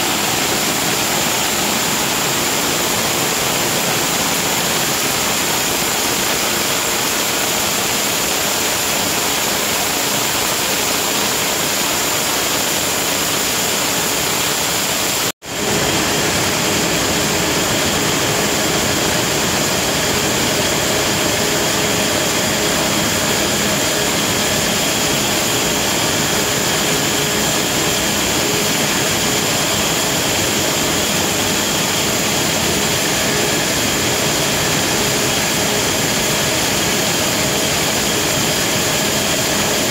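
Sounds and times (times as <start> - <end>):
steady hum tones: 0.0 - 12.6
production-line machinery roar: 0.0 - 39.9.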